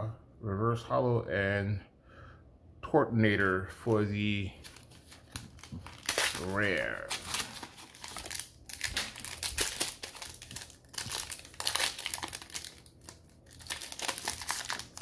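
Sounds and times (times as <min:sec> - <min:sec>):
foil wrapper crinkling: 0:04.6 - 0:15.0
foil wrapper tearing: 0:04.6 - 0:15.0.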